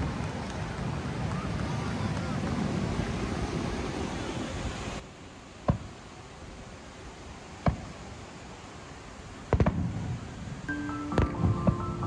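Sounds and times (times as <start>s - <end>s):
firework rumbling hiss: 0.0s - 12.0s
firework sharp bangs: 5.6s - 6.1s, 7.6s - 8.1s, 9.4s - 10.3s, 11.0s - 12.0s.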